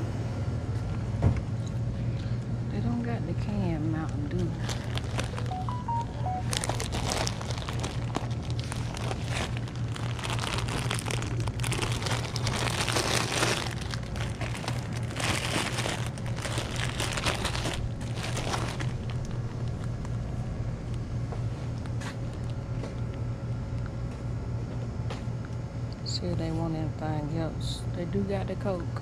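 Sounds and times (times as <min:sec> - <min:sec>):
steady low hum: 0:00.0 - 0:29.0
plastic bottle crinkling: 0:04.6 - 0:19.9.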